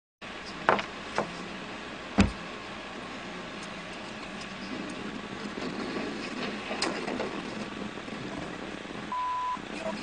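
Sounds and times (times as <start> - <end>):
car cabin road noise: 0.2 - 10.0
sharp knocks: 2.2 - 2.4.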